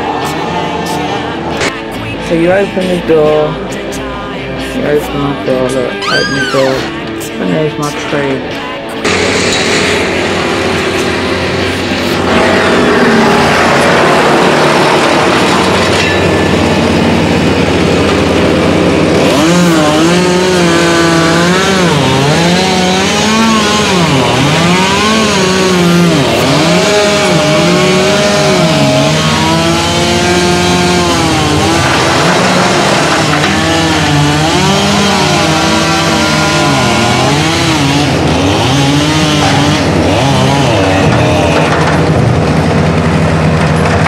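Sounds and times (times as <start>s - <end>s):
chainsaw cutting a tree: 9.0s - 44.0s.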